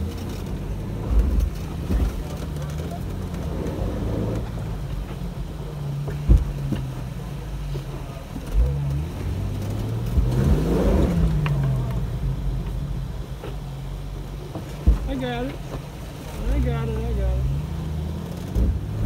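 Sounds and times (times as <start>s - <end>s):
engine revving: 0.0s - 13.7s, 16.3s - 19.0s.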